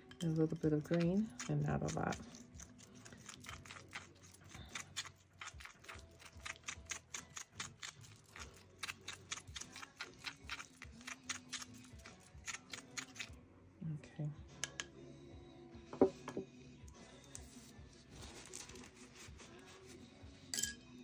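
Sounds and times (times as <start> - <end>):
stir stick tapping against bowl: 14.6 - 14.9.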